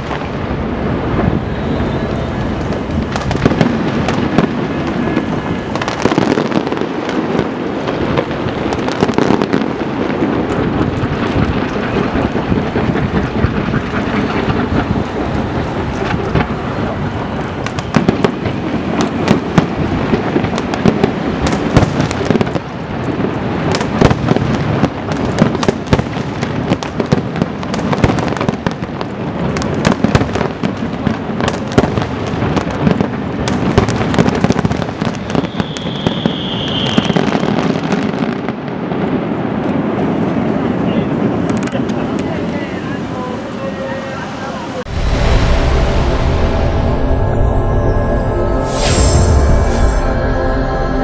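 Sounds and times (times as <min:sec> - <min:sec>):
fireworks bangs and crackle: 0:00.0 - 0:51.0
firework whistle: 0:00.1 - 0:22.7, 0:33.8 - 0:38.6, 0:44.8 - 0:51.0.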